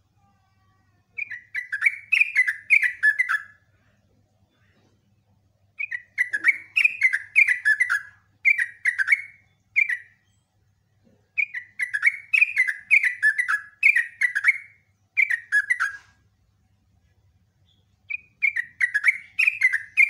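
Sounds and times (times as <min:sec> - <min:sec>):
bulbul singing chattering song: 0:01.2 - 0:03.8, 0:05.7 - 0:10.6, 0:11.4 - 0:16.1, 0:17.5 - 0:20.0.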